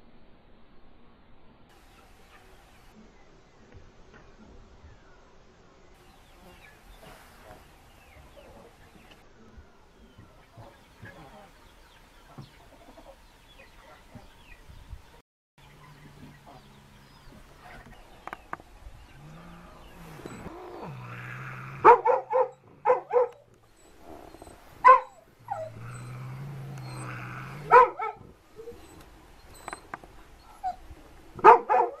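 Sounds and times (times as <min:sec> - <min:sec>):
dog barking: 0:21.8 - 0:23.5, 0:24.4 - 0:26.2, 0:26.8 - 0:28.8, 0:31.4 - 0:32.0.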